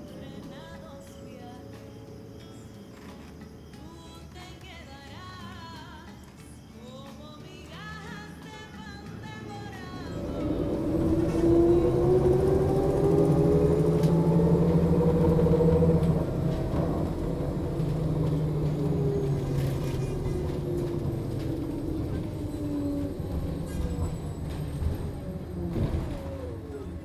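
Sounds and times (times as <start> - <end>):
bus engine rumble: 7.7 - 27.0.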